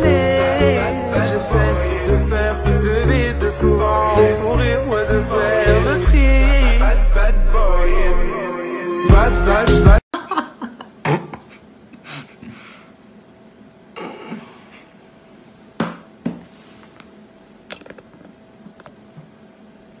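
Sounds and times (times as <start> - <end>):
faint steady hum: 10.2 - 20.0.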